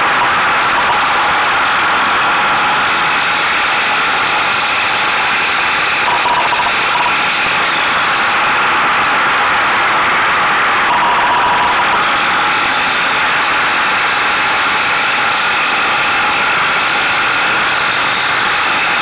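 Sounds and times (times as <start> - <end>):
motorcycle running at speed: 0.0 - 19.0
wind and road noise: 0.0 - 19.0.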